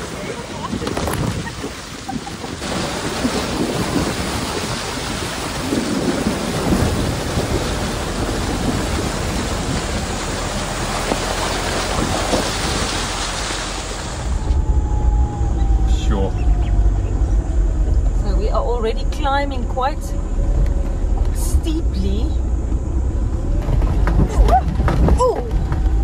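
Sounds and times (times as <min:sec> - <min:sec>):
water splashing and rushing: 0:00.0 - 0:18.4, 0:22.4 - 0:26.0
low rumble: 0:00.1 - 0:26.0.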